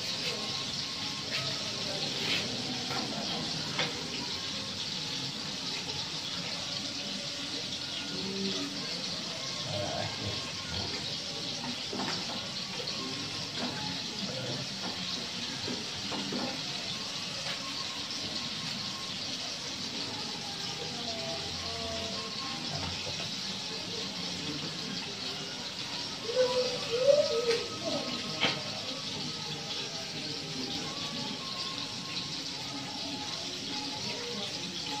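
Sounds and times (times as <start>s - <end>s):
food sizzling in a pan: 0.0s - 35.0s
wavering cooing call: 26.1s - 28.4s.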